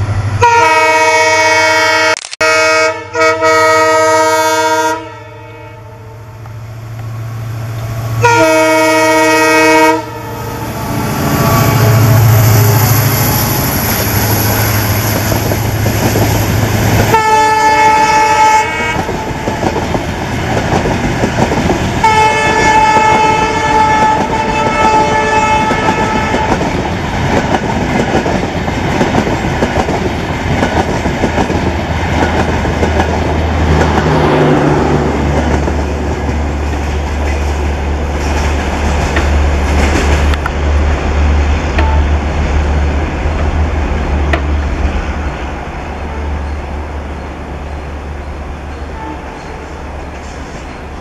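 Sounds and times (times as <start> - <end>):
train horn: 0.4 - 6.4, 8.2 - 15.0, 17.1 - 19.4, 22.0 - 26.8, 41.7 - 42.2, 46.0 - 46.6, 48.8 - 49.8
train coaches clattering: 7.7 - 51.0.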